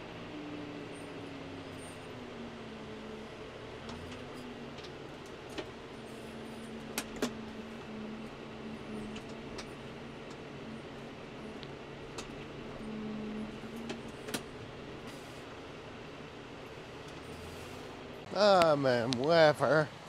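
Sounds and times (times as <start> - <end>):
tractor engine running: 0.0 - 20.0.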